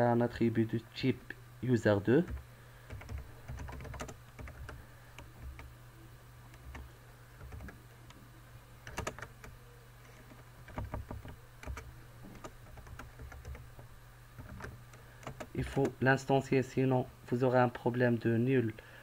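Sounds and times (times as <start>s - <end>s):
steady low hum: 0.0s - 19.0s
keyboard typing clicks: 2.3s - 5.7s, 6.5s - 8.2s, 8.8s - 9.6s, 10.6s - 16.0s.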